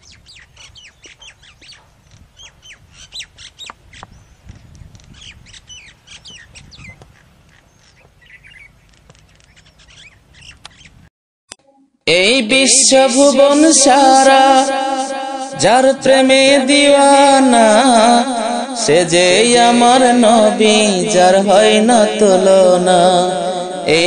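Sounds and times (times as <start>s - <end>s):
birds chirping and calling: 0.0s - 11.1s.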